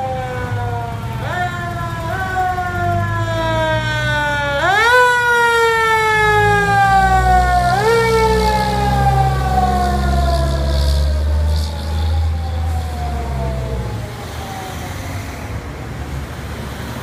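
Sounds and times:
fire engine siren: 0:00.0 - 0:17.0
truck engine running: 0:00.2 - 0:04.8.

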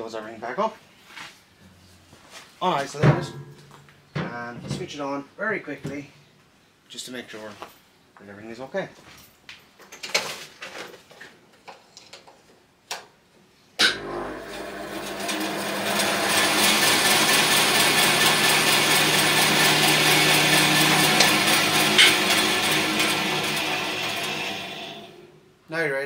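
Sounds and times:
bandsaw running with low hum: 0:13.8 - 0:25.4
knocks and clicks: 0:21.1 - 0:22.7.

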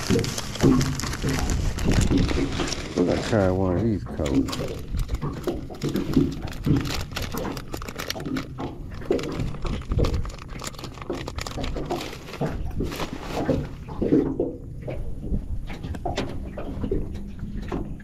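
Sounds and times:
fishing lures rustling and clicking: 0:00.0 - 0:14.0.

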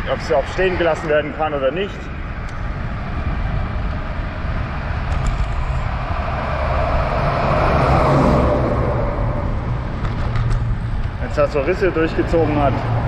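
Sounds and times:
bicycle road and wind noise: 0:00.0 - 0:13.0
car passing: 0:00.0 - 0:13.0.

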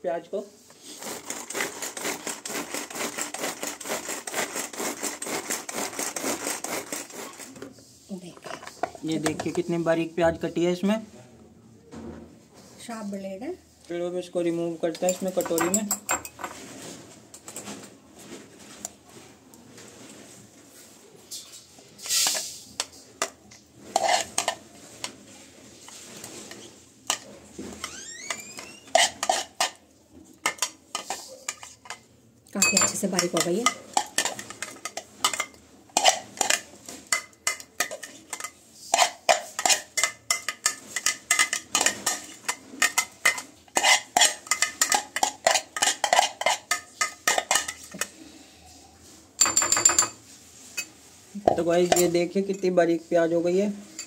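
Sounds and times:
spoon scraping and tapping bowl: 0:14.9 - 0:16.6, 0:22.0 - 0:25.2, 0:25.8 - 0:29.8, 0:30.4 - 0:48.1, 0:49.4 - 0:52.7.

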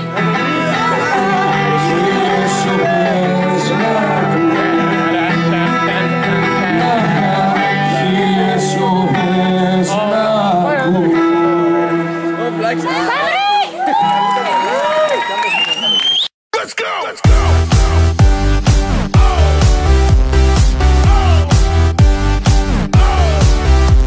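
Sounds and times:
person singing: 0:00.0 - 0:12.6, 0:16.6 - 0:24.0
acoustic guitar: 0:00.0 - 0:13.2.

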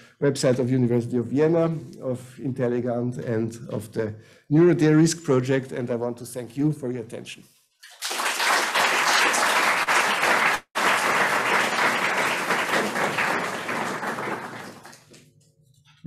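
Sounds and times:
audience applauding: 0:07.9 - 0:15.2.

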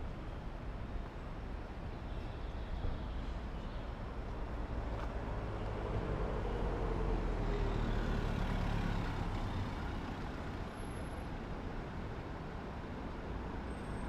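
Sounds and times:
passing street traffic rumble: 0:03.1 - 0:13.6.

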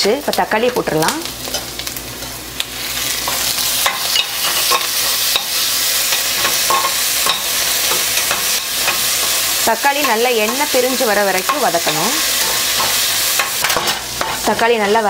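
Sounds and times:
vegetables sizzling in hot oil: 0:00.0 - 0:15.0
spatula scraping and tapping pan: 0:03.2 - 0:10.8, 0:11.4 - 0:14.6.

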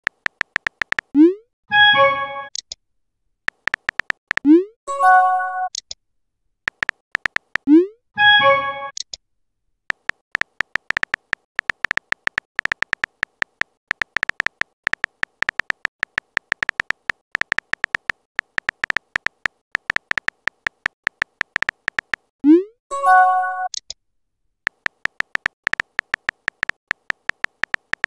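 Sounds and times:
phone keyboard key clicks: 0:00.0 - 0:01.1, 0:03.5 - 0:04.5, 0:06.7 - 0:07.7, 0:09.9 - 0:22.3, 0:24.7 - 0:28.0.

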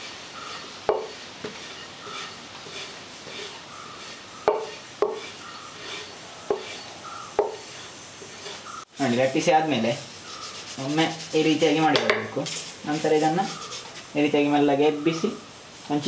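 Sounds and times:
rolling pin rubbing dough: 0:00.0 - 0:14.2
rolling pin knocking on board: 0:07.4 - 0:07.6.

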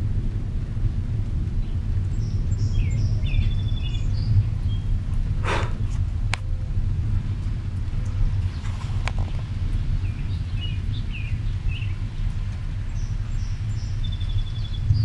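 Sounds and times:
wind rumbling on microphone: 0:00.0 - 0:15.0
small birds chirping: 0:01.6 - 0:06.0, 0:08.4 - 0:15.0.

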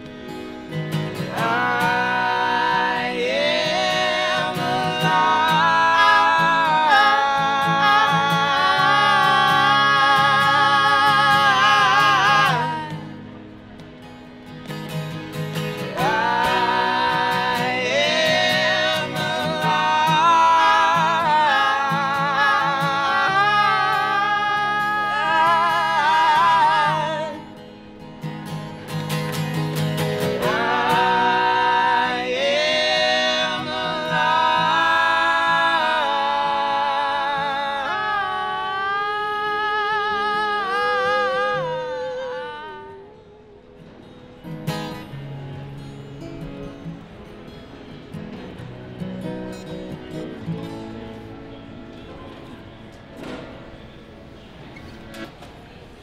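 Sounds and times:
acoustic guitar: 0:00.0 - 0:56.0
folk trio singing in harmony: 0:01.0 - 0:13.3, 0:15.8 - 0:27.6, 0:30.0 - 0:43.2.

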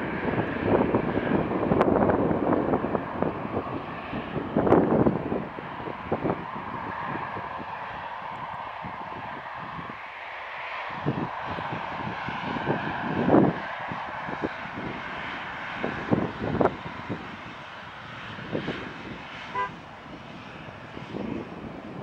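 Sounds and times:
jet engines roaring: 0:00.0 - 0:22.0
brief high tone: 0:19.6 - 0:19.8.

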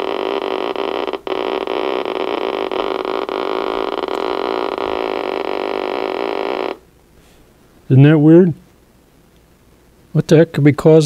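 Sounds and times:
radio speaker buzzing: 0:00.0 - 0:06.9.

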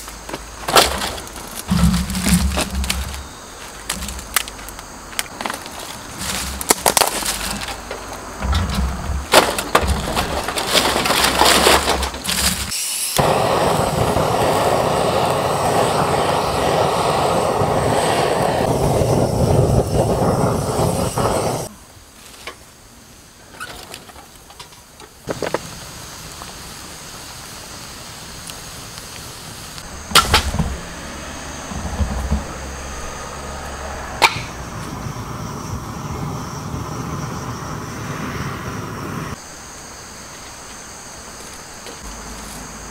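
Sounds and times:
dry twigs cracking and snapping: 0:00.6 - 0:08.2
gas torch hissing: 0:12.2 - 0:21.8, 0:25.3 - 0:39.4.

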